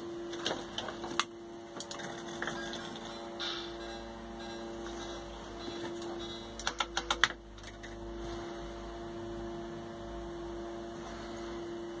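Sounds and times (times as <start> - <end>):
electrical hum: 0.0 - 12.0
sharp clicks: 6.6 - 7.4.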